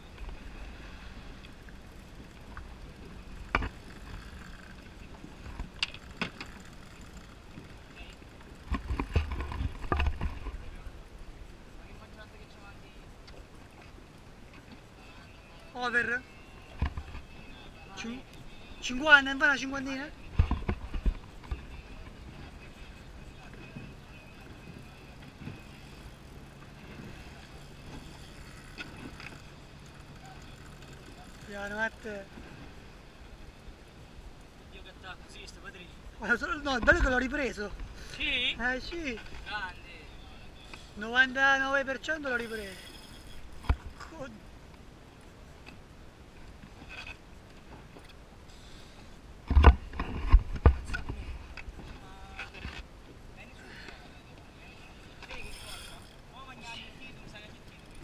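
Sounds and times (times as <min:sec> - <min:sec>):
outboard engine idling: 0:00.0 - 0:34.7
water noise around boat: 0:00.0 - 0:58.0.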